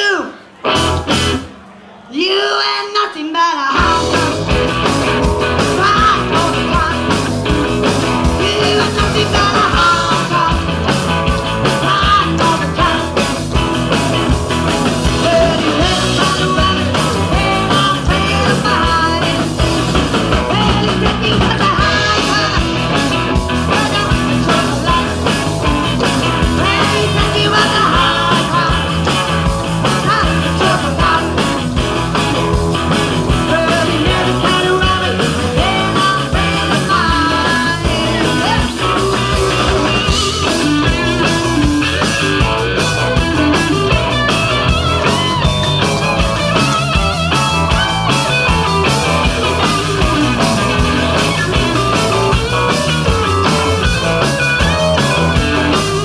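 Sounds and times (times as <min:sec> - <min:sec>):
country rock band playing: 0:00.5 - 0:02.0, 0:03.6 - 0:56.0
woman singing: 0:02.2 - 0:04.6, 0:05.6 - 0:07.3, 0:08.3 - 0:10.8, 0:11.7 - 0:13.4, 0:15.1 - 0:19.6, 0:20.4 - 0:25.6, 0:26.4 - 0:29.3, 0:29.9 - 0:31.7, 0:33.4 - 0:39.0.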